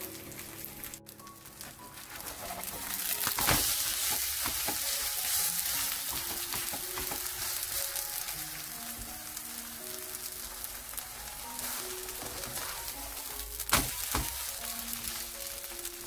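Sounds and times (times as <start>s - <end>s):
pancake sizzling in hot oil: 0.0s - 16.0s
spatula flipping pancake: 1.4s - 16.0s.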